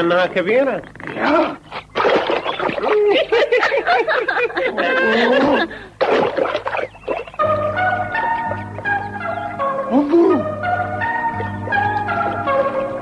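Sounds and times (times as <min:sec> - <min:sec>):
water splashing: 0:01.8 - 0:03.2, 0:06.0 - 0:07.4
cartoon music: 0:06.2 - 0:13.0.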